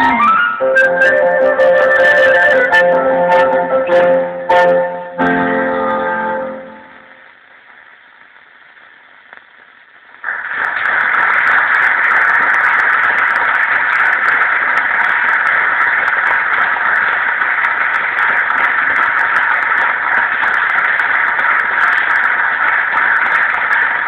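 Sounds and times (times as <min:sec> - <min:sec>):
classical music on radio: 0:00.0 - 0:07.9
radio static hiss with crackles: 0:05.0 - 0:24.0.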